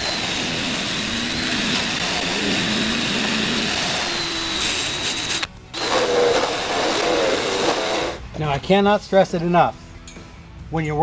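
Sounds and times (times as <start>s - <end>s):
rotary tool grinding metal: 0.0s - 8.2s.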